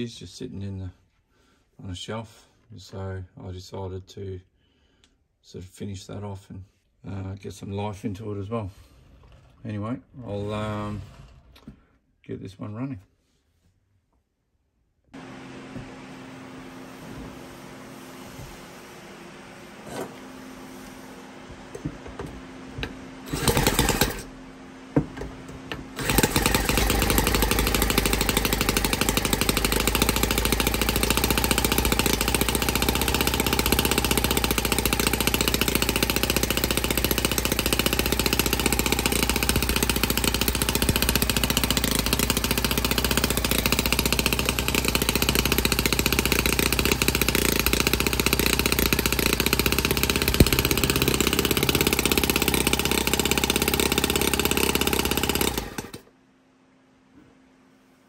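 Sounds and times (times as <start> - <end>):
model engine running: 15.2 - 24.3, 25.9 - 56.1
cordless drill whirring: 21.8 - 24.3, 25.9 - 56.1.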